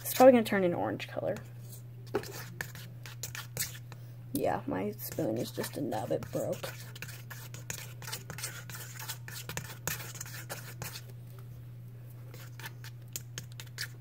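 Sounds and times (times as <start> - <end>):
spoon scraping a steel bowl: 1.6 - 4.0, 5.1 - 11.1, 12.3 - 14.0.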